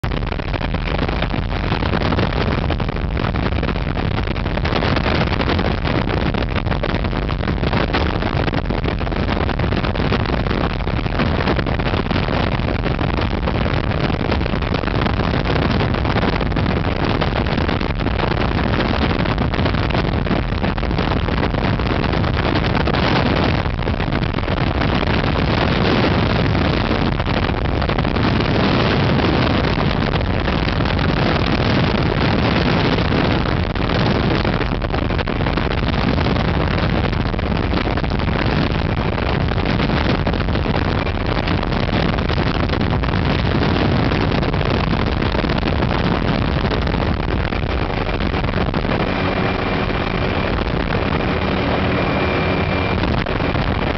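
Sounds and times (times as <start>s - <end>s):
wind buffeting microphone: 0.0s - 53.9s
helicopter engine and rotor noise: 49.0s - 50.5s, 51.1s - 53.0s.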